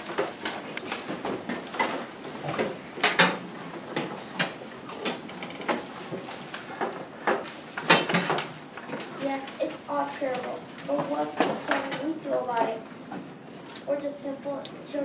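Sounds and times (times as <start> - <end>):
knocks and bumps of desks: 0.0 - 9.2.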